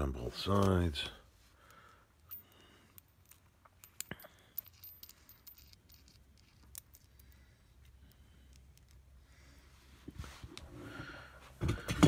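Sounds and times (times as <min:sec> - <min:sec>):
small metal clicks: 0:01.7 - 0:09.1
light scratching of bolt and nut: 0:02.2 - 0:09.1.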